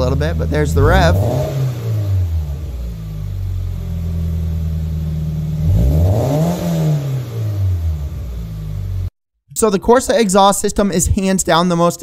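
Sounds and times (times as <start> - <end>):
car engine idling and revving: 0.0 - 9.1.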